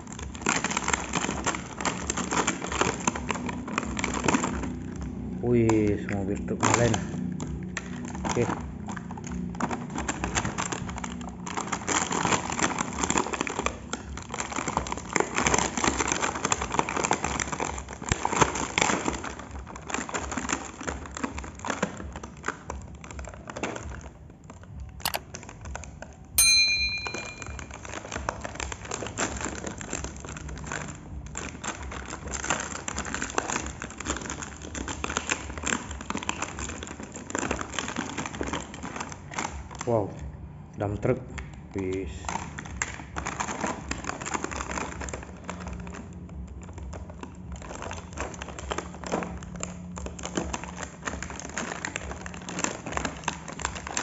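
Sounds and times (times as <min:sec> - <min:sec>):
plastic packaging crinkling: 0:00.0 - 0:54.0
brief ringing ping: 0:26.4 - 0:27.6.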